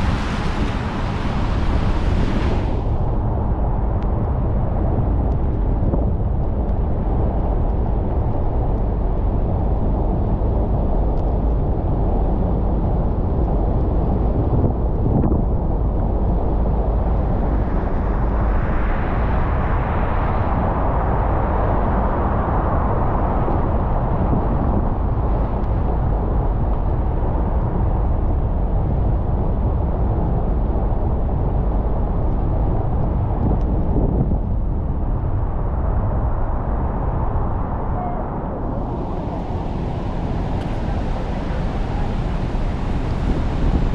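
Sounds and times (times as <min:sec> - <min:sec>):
car tyres on wet road: 0:00.0 - 0:03.0.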